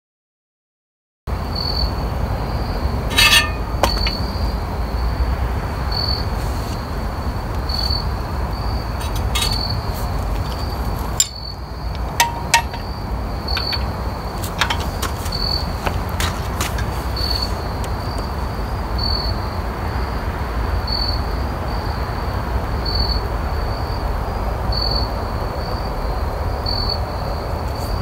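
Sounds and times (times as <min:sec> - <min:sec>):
insect chirping: 0:01.4 - 0:20.2, 0:20.9 - 0:28.0
sharp clinks: 0:03.1 - 0:04.4, 0:11.1 - 0:15.6.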